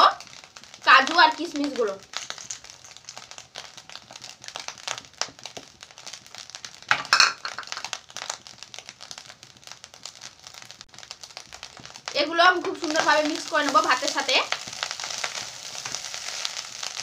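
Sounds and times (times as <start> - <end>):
clicking and crackling from pan: 0.0 - 17.0
nuts tipped into a pan: 6.9 - 7.9.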